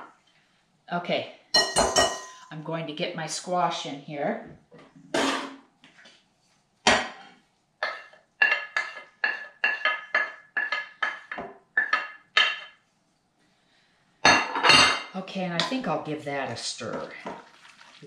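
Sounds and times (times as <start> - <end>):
ringing clinks on glass bowl: 1.6 - 2.5
utensil clattering on plate: 7.8 - 12.8.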